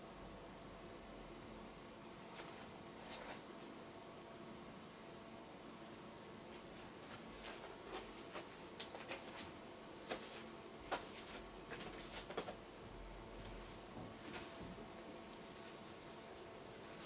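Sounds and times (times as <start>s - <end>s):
faint room hum: 0.0s - 17.0s
soft clicks and rustles: 2.3s - 3.7s, 6.5s - 12.6s, 13.4s - 17.0s.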